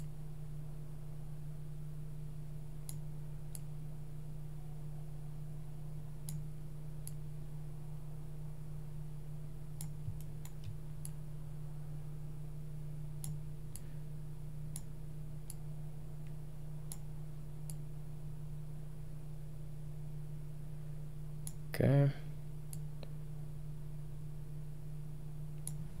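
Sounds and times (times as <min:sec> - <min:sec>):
low electrical hum: 0:00.0 - 0:26.0
computer mouse clicking: 0:02.8 - 0:03.7, 0:06.2 - 0:06.4, 0:09.8 - 0:11.2, 0:13.2 - 0:13.9.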